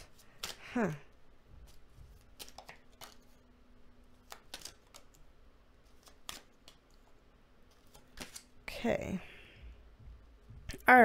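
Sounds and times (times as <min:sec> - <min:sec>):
cards dealt onto wooden board: 0:01.7 - 0:03.4.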